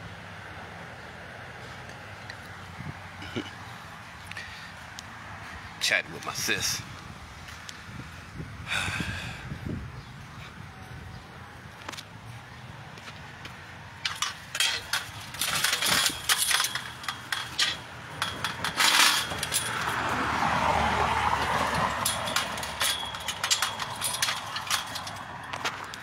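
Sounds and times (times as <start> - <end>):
car passing: 11.4 - 26.0.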